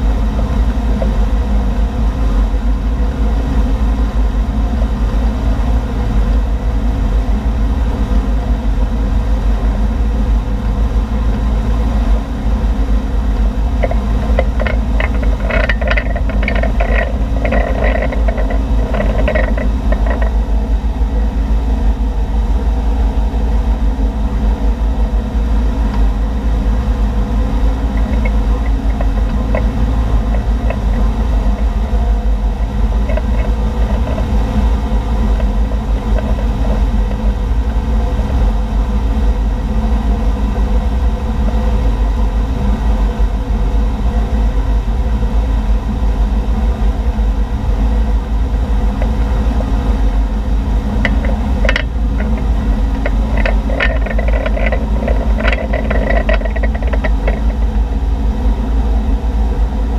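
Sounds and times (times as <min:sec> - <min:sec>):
boat engine running: 0:00.0 - 0:59.9
water churning: 0:13.1 - 0:22.2, 0:26.0 - 0:38.7, 0:48.5 - 0:57.9.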